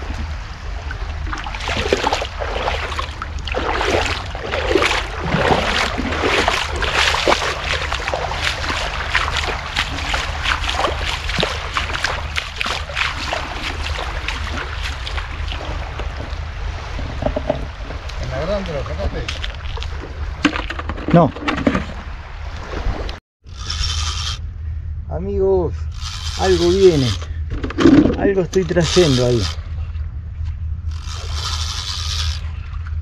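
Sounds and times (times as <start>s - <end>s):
river water splashing from wading: 0.0s - 17.0s
wind rumble on microphone: 0.0s - 33.0s.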